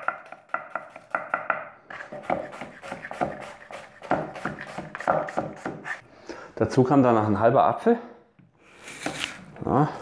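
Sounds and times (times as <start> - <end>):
knife chopping on cutting board: 0.0 - 6.0.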